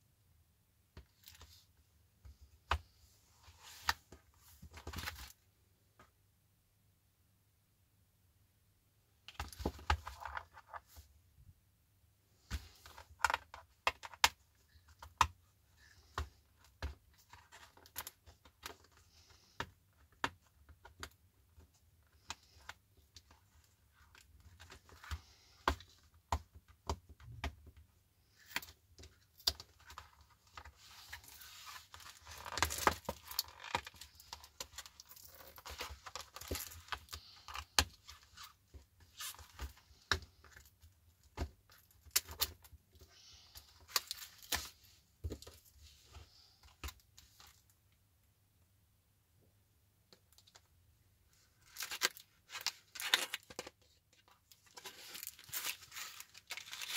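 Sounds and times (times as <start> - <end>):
cardboard rustling: 51.6 - 56.9.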